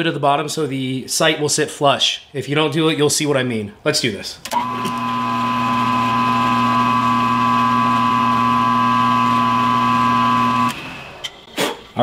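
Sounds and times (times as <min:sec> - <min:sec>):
milling machine spindle humming: 0:04.5 - 0:11.3
drill bit whine: 0:04.6 - 0:11.4.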